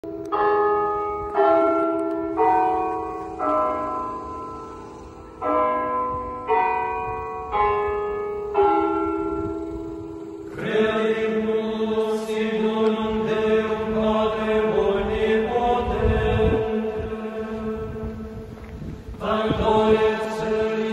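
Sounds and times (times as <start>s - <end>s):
church bells ringing: 0.0s - 18.4s
voices chanting in unison: 10.5s - 18.4s, 19.1s - 20.9s.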